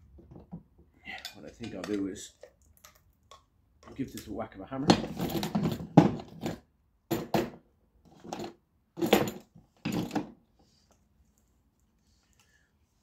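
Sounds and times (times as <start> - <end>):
hand tools clanking on workbench: 4.8 - 6.5.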